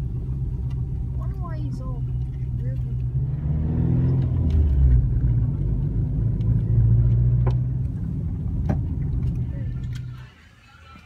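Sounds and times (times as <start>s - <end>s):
car engine accelerating: 0.0s - 11.0s
road rumble: 0.0s - 11.0s.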